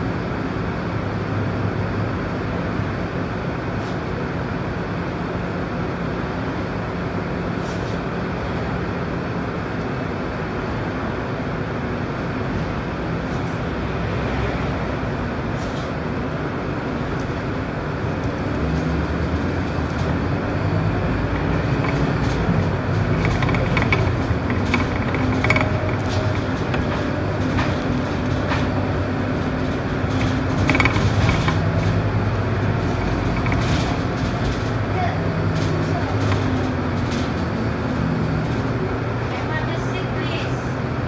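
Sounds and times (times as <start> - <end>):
bus diesel engine accelerating: 0.0 - 41.0
light clicks and rattles: 20.9 - 37.4.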